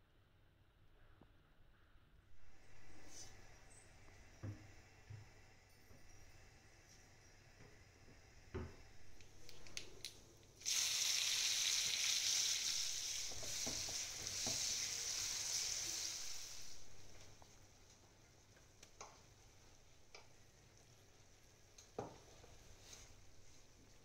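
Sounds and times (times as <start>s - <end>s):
onions sizzling in hot oil: 10.6s - 17.6s.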